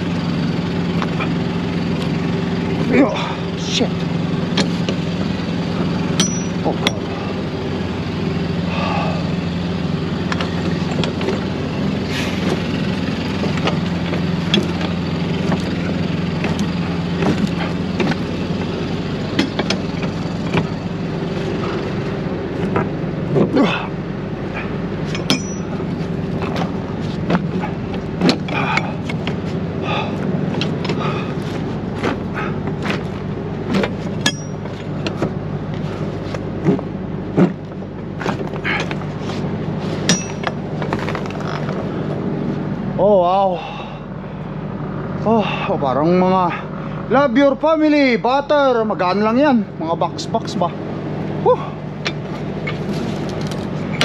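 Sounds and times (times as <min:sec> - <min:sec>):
engine idling: 0:00.0 - 0:54.0.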